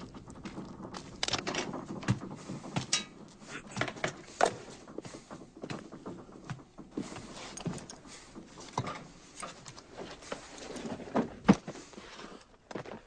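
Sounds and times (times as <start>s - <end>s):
gear clattering and rustling: 0.0s - 13.0s.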